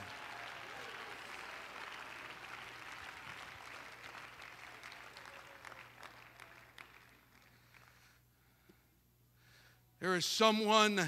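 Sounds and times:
faint applause: 0.0 - 8.2.

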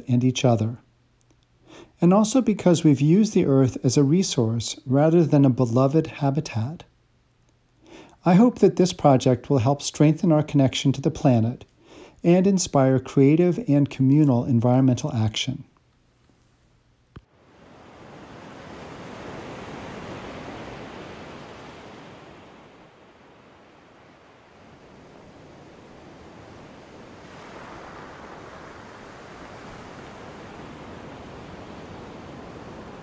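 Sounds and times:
ocean surf washing: 17.3 - 33.0.

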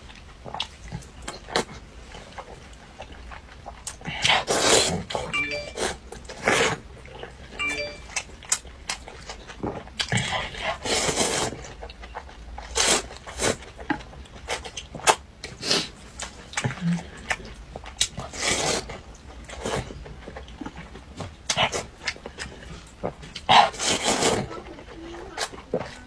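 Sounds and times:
noodles being slurped: 3.7 - 5.2, 10.0 - 11.9, 12.6 - 13.8, 18.0 - 20.5, 21.5 - 26.0.

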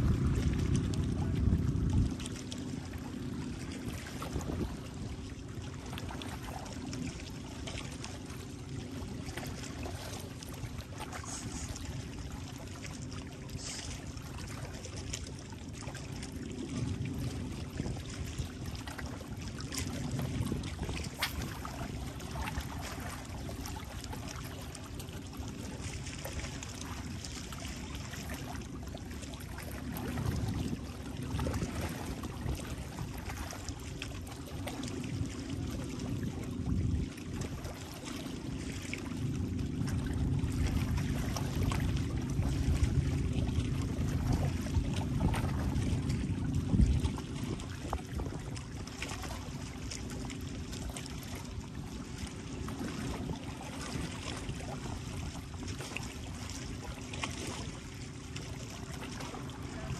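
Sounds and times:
low rumble: 0.0 - 14.8, 34.5 - 55.4
seawater lapping and trickling: 0.0 - 59.9.

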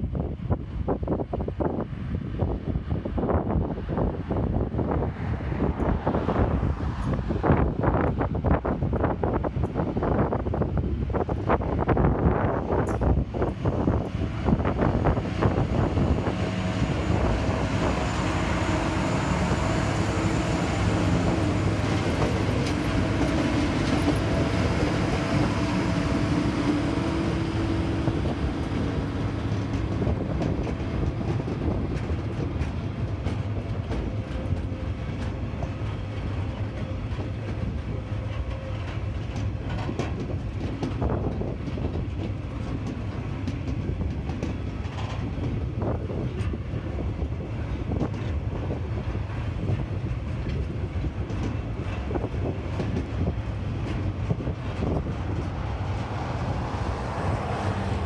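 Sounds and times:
diesel locomotive engines droning: 0.0 - 58.0
wagon wheels clacking over rail joints: 16.4 - 46.6.

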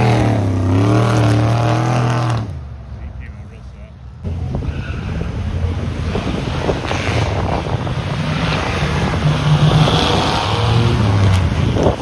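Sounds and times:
car engines idling: 2.5 - 9.9
wind noise on microphone: 4.3 - 12.0.

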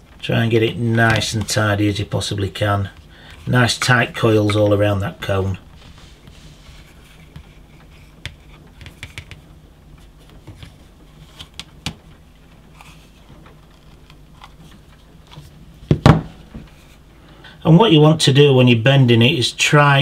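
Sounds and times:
wire clicking and scraping: 5.6 - 15.6.

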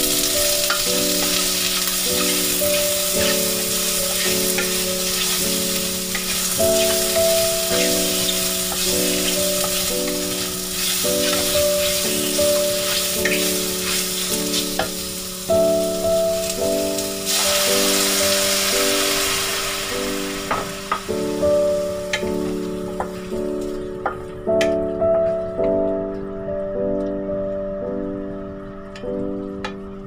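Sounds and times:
vegetables sizzling in a wok: 0.0 - 23.6
background music of chords: 0.0 - 30.0
water poured into hot wok: 17.2 - 22.1.

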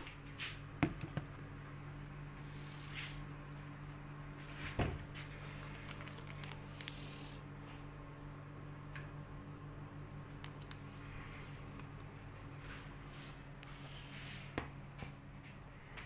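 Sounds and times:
faint low hum: 0.0 - 16.0
tea bag sachets rustling: 5.2 - 7.2.

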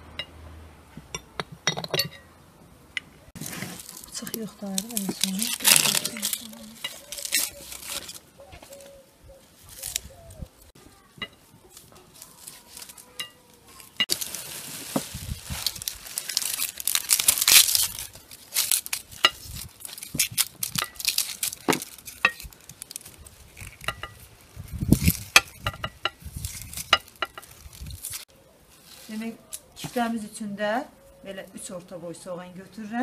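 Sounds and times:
dry onion skins crackling: 3.3 - 30.6
plastic bag crinkling: 3.4 - 8.9, 11.7 - 28.3.

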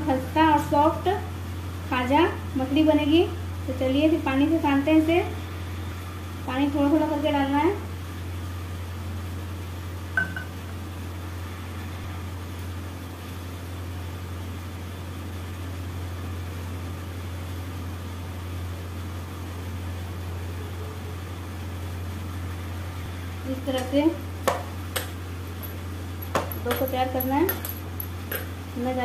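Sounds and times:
steady low hum: 0.0 - 29.0
spoon clinking against metal bowl: 10.2 - 10.5.

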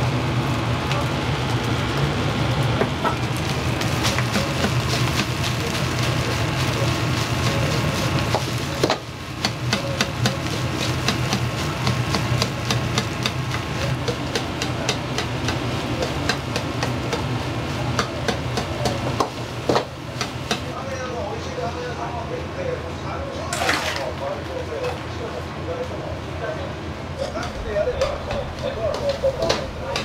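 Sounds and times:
sizzling: 0.0 - 21.1, 27.2 - 30.0
low burner roar: 0.0 - 30.0.

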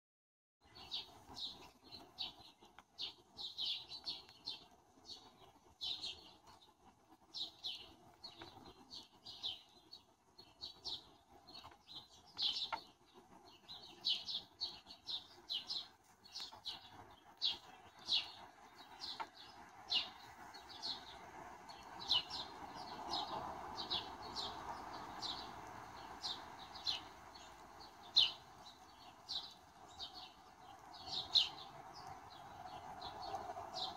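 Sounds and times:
sparrows chirping: 0.6 - 33.9.

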